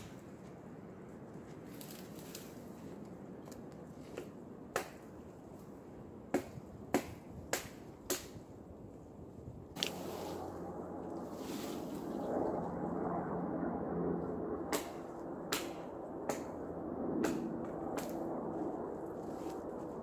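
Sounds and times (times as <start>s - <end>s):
blade chopping into tree: 6.3s - 8.4s.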